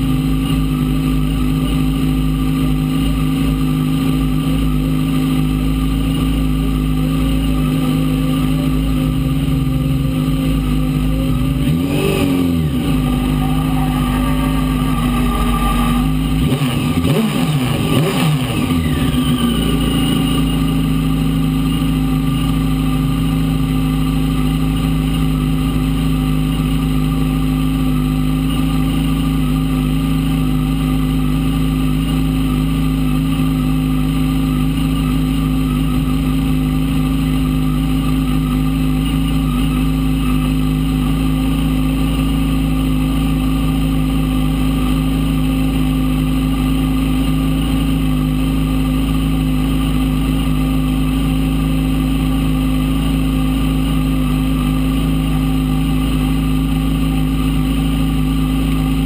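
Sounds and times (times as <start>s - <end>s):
race car engine idling and revving: 0.0s - 59.0s.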